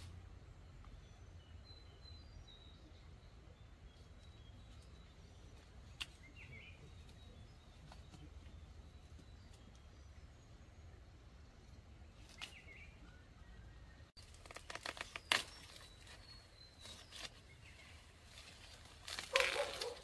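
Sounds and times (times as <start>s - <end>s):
bird chirping: 0.0s - 20.0s
corn stalks snapping: 14.2s - 17.4s, 18.4s - 20.0s
corn stalks rustling and crackling: 14.2s - 20.0s.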